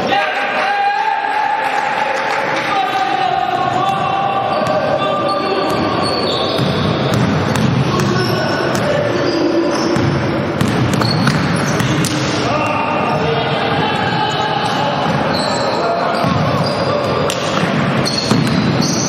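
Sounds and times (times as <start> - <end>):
shouts and chatter: 0.0 - 6.8, 11.6 - 19.0
basketball bouncing on wooden court: 5.6 - 9.0, 9.8 - 12.3, 16.1 - 19.0.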